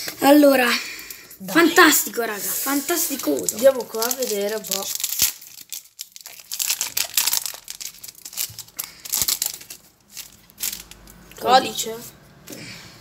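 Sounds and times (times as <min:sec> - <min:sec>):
foil wrapper crinkling and tearing: 0:02.6 - 0:11.3.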